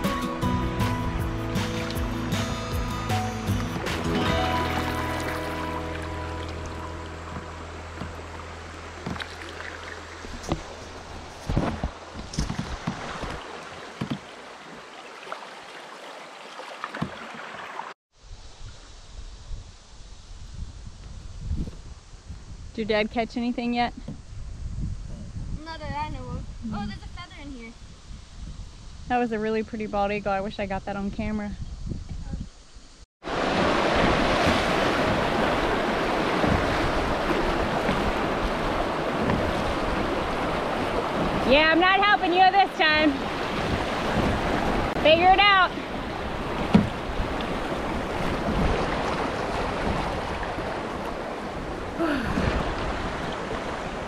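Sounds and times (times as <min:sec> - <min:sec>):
water rushing and splashing: 0:00.7 - 0:18.0, 0:33.2 - 0:54.0
dull knocks: 0:14.0 - 0:14.3, 0:46.6 - 0:47.0
wind buffeting microphone: 0:18.4 - 0:54.0.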